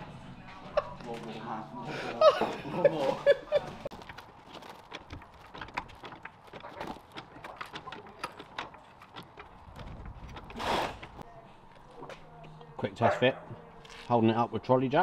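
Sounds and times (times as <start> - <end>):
trolley jack metallic clicks and clanks: 4.0 - 10.6.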